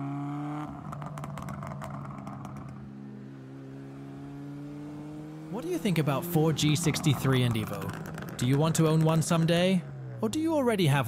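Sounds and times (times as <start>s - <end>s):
car engine revving: 0.0s - 10.8s
exhaust crackles: 0.6s - 3.6s, 5.4s - 11.0s.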